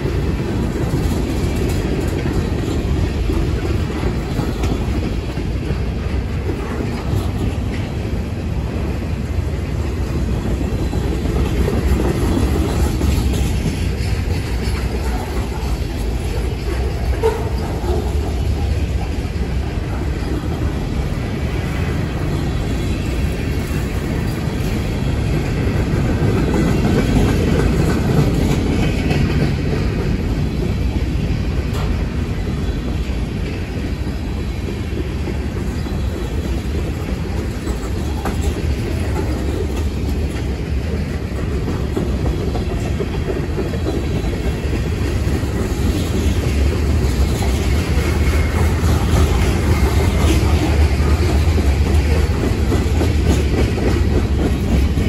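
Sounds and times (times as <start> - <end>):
train wheels on rails: 0.0 - 55.0.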